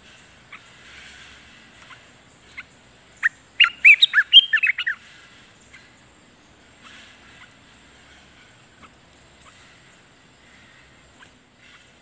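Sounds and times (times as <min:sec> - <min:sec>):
bird singing whistled notes: 0:01.9 - 0:05.0.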